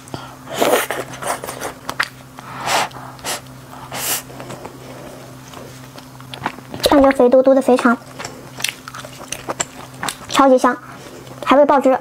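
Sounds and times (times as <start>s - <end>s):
person chewing food: 0.6s - 6.9s, 8.0s - 10.4s
hissy mouth noises: 2.4s - 5.2s.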